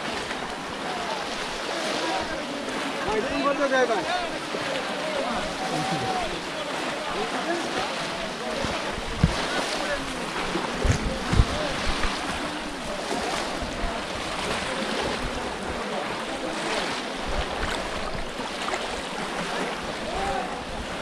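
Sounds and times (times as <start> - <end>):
people splashing through water: 0.0 - 21.0
wind on microphone: 8.6 - 15.9.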